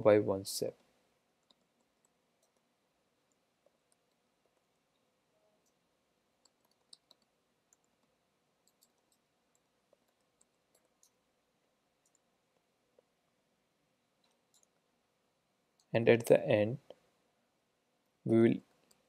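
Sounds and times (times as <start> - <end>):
faint keyboard clicks: 1.4 - 5.8, 6.4 - 11.2, 12.0 - 13.1, 14.2 - 14.8.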